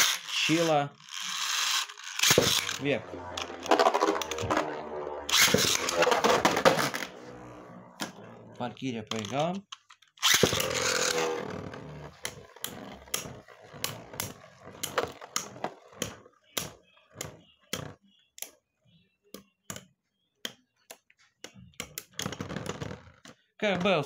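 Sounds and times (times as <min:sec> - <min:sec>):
spinning tops whirring: 0:00.0 - 0:08.3, 0:10.2 - 0:16.0.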